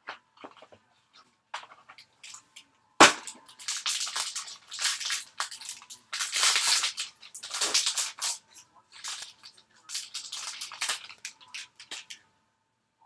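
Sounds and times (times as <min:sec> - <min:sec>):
foil pack crinkling: 0:03.1 - 0:12.2
foil pack tearing: 0:03.5 - 0:12.2.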